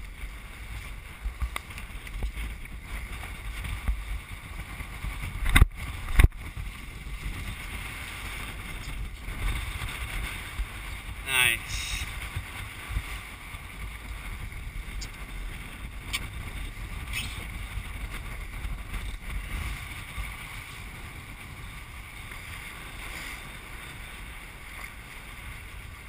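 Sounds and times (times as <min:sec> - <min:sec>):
water rushing along a hull: 0:00.0 - 0:26.0
wind buffeting microphone: 0:00.0 - 0:26.0.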